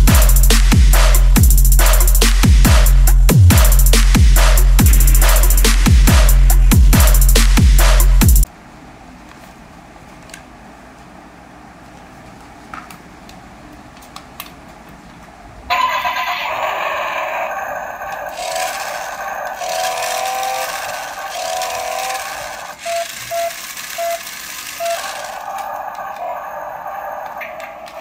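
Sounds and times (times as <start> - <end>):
electronic toy sound effects: 15.7 - 28.0
short beeps: 22.8 - 25.2.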